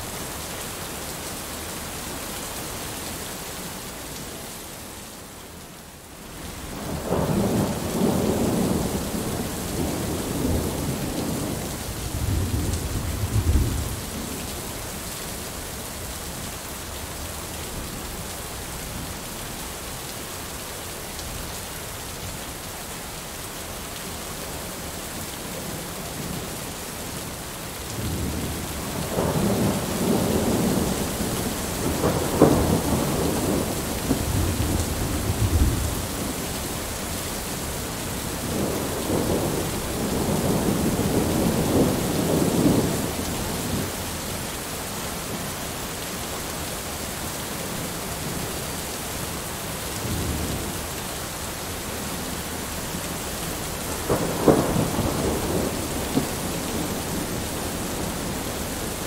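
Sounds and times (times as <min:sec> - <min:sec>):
heavy rain: 0:00.0 - 0:59.0
thunder rumbling: 0:28.0 - 0:36.4, 0:53.9 - 0:59.0.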